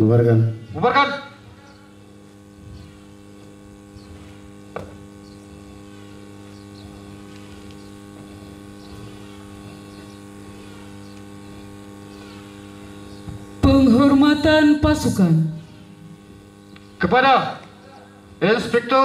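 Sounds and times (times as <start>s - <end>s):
electrical mains hum: 0.0s - 19.0s
faint ticks: 11.0s - 11.4s.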